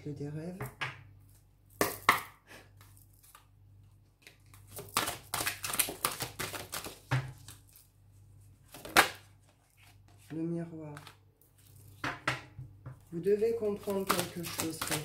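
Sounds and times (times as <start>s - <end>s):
cards being shuffled: 4.2s - 7.9s, 8.7s - 10.3s, 13.7s - 15.0s
cards tapping: 4.7s - 7.5s, 13.8s - 15.0s.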